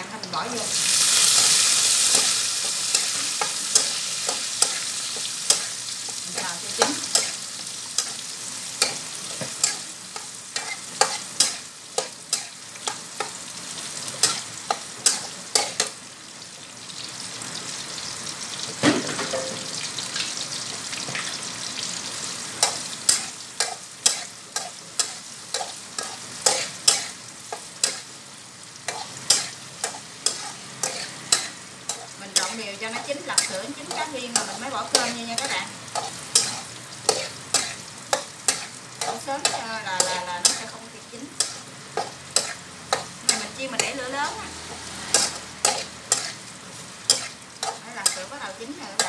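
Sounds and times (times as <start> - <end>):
food sizzling: 0.0 - 49.0
metal spatula clanking on wok: 19.1 - 19.7.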